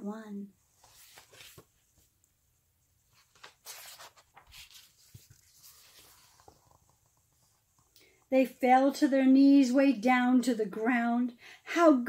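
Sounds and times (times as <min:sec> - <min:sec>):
stiff page being turned: 0:00.8 - 0:02.1, 0:03.1 - 0:07.9.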